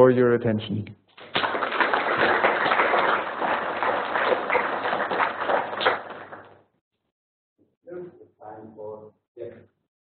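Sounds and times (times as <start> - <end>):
audience applauding: 1.2 - 6.6.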